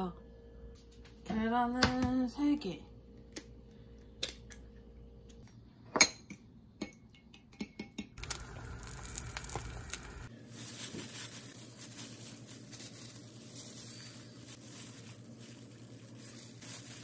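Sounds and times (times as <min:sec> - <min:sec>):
soft steady rustle: 0:09.3 - 0:17.0.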